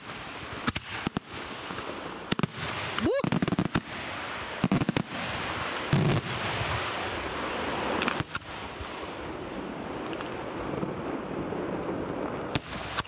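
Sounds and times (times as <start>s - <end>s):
hiss of burning fireworks: 0.0s - 13.0s.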